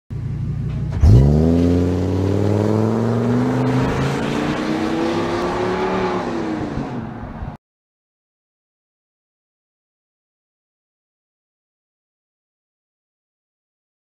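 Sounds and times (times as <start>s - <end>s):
van engine idling and accelerating: 0.1s - 5.8s.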